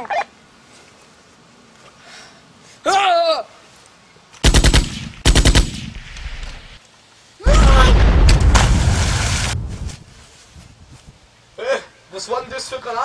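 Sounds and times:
person yelling: 2.8s - 3.5s, 7.4s - 8.1s
rapid gunfire: 4.4s - 6.0s
grenade explosion: 7.4s - 9.9s.

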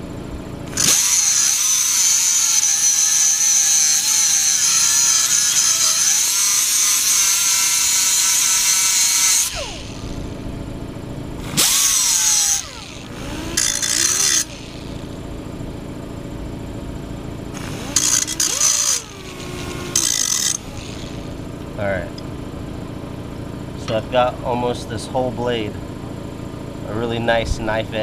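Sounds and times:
rotary grinder grinding steel: 0.7s - 10.3s, 11.4s - 15.2s, 17.6s - 21.5s.

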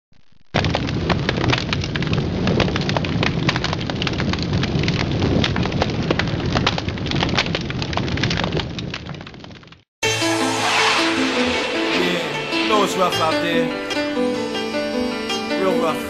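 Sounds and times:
fire crackling and popping: 0.1s - 15.5s
low rumble: 10.0s - 14.0s.

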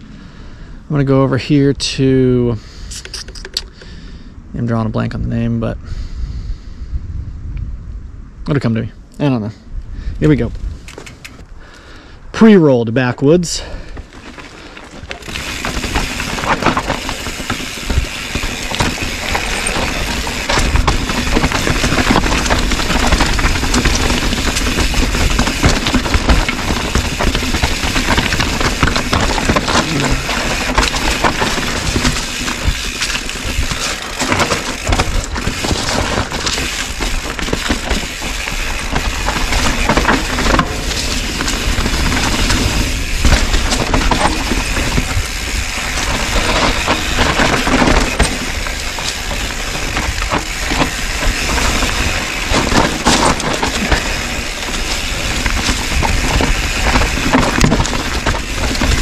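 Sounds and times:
wind on microphone: 2.9s - 8.5s
bike tyres crunching over rock: 10.3s - 59.0s
bike clattering over bumps: 13.6s - 59.0s.

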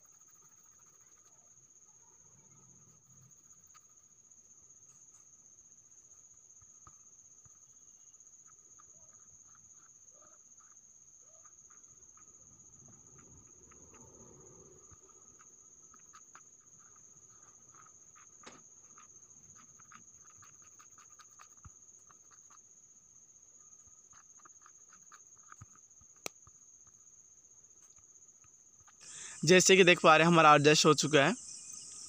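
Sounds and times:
faint ticks: 8.7s - 22.6s, 24.2s - 26.9s.

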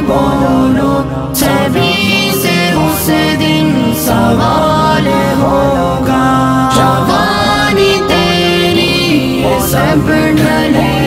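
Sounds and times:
young man singing: 0.0s - 11.0s.

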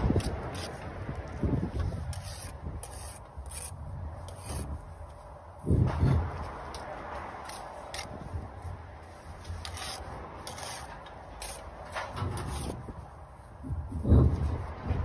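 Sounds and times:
trowel scraping mortar: 0.0s - 4.8s, 9.4s - 12.9s.

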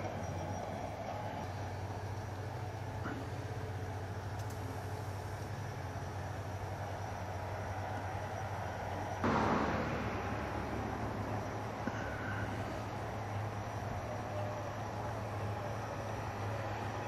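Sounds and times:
low outdoor rumble: 0.0s - 17.0s
rush of noise: 9.2s - 13.6s.

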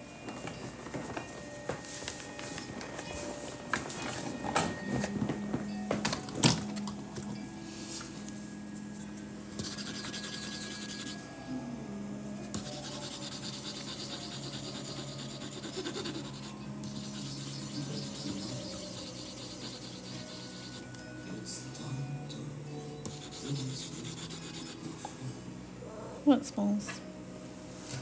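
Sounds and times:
steady low hum: 2.6s - 26.3s
pen scratching on wooden board: 9.6s - 11.2s, 12.6s - 20.9s, 23.1s - 24.8s.

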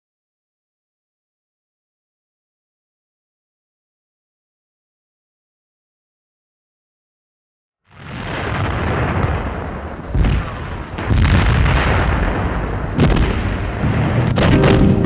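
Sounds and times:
heavy sharp gunfire reports: 8.1s - 15.0s
continuous low rumble: 10.1s - 15.0s.

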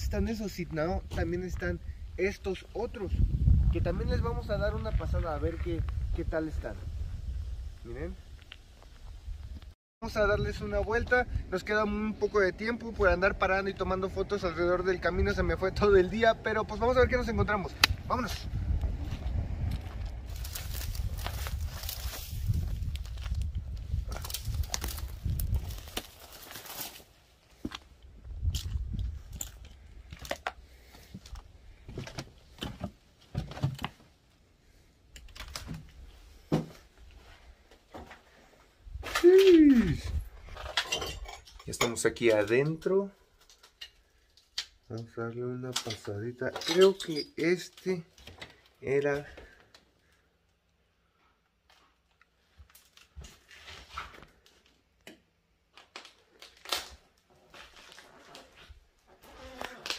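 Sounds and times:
low rumble: 13.1s - 25.8s
footsteps crunching on debris: 19.1s - 34.0s.

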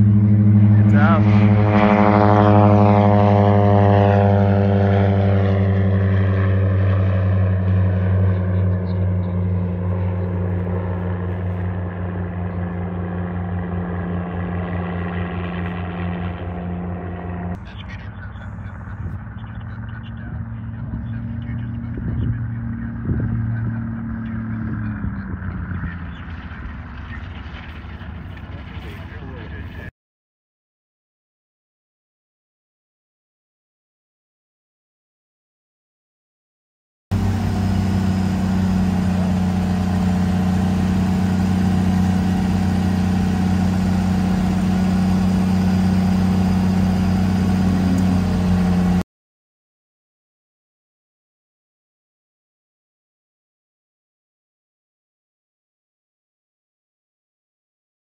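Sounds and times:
propeller plane engine drone: 0.0s - 29.9s, 37.1s - 49.0s.

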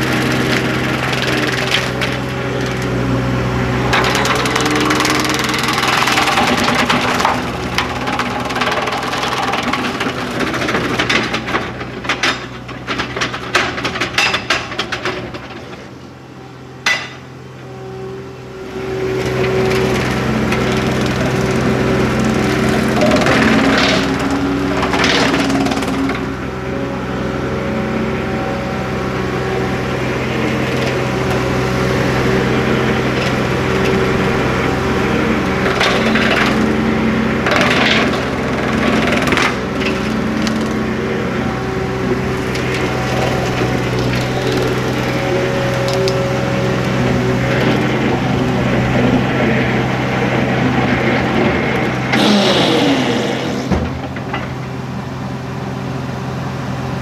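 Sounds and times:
wood cracking and splintering: 0.0s - 2.9s, 3.9s - 14.8s, 19.3s - 26.3s, 32.4s - 36.8s, 37.4s - 41.0s, 42.0s - 49.4s, 50.9s - 54.4s
engine and cutter hum: 0.0s - 57.0s.

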